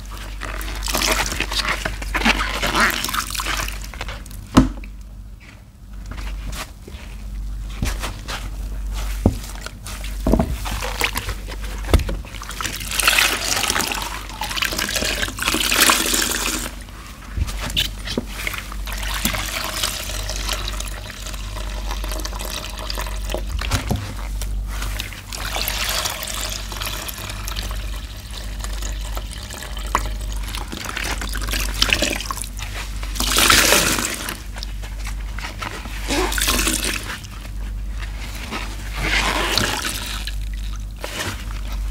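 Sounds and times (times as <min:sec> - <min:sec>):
wet sponges squelching: 0:00.0 - 0:04.4, 0:06.1 - 0:22.3.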